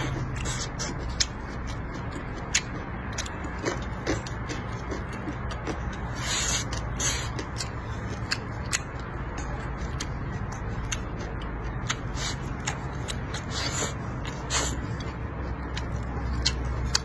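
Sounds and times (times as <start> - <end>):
person chewing: 0.0 - 17.0
steady low hum: 0.0 - 17.0.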